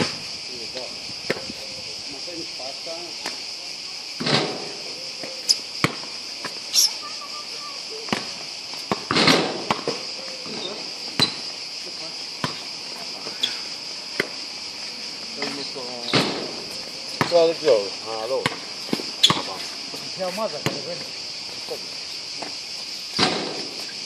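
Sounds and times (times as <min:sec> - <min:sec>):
high-pitched insect chorus: 0:00.0 - 0:24.0.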